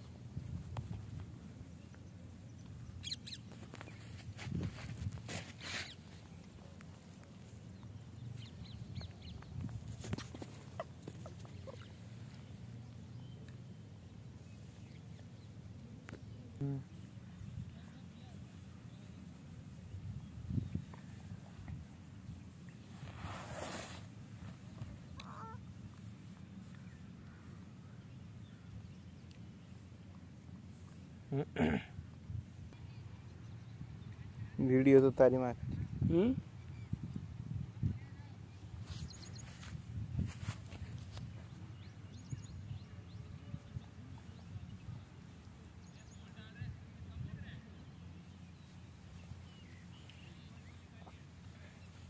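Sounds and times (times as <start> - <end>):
wind rumble on microphone: 0.0 - 1.9, 3.6 - 5.4, 8.0 - 10.8, 17.2 - 23.5, 32.0 - 34.7, 35.4 - 50.8
rustling hiss: 21.0 - 26.8
animal squeaks: 25.2 - 25.6.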